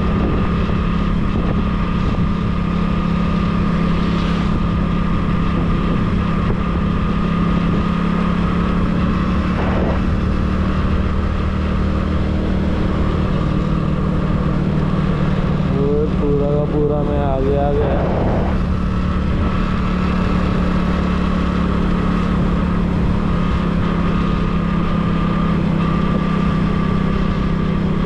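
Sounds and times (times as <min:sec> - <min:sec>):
vehicle engine droning: 0:00.0 - 0:28.0
wind buffeting microphone: 0:00.0 - 0:28.0
high whine: 0:08.5 - 0:20.8.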